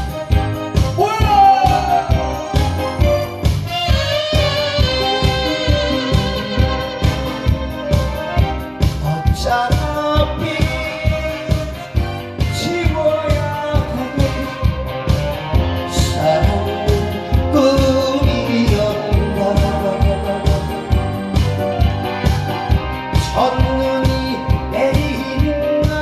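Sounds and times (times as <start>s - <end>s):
amplified accompaniment with beat: 0.0s - 26.0s
man singing into microphone: 0.7s - 3.2s, 8.9s - 21.5s, 23.1s - 26.0s.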